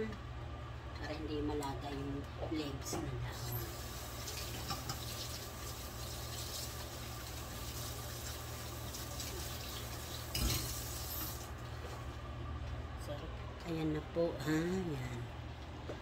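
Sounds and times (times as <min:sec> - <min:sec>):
low steady hum: 0:00.0 - 0:16.0
soup bubbling in a pot: 0:03.5 - 0:11.6.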